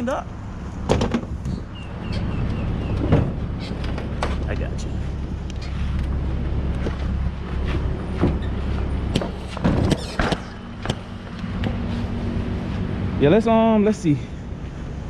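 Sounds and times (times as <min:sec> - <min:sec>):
vehicle knocking and clunking: 0:00.8 - 0:04.7, 0:06.8 - 0:11.8.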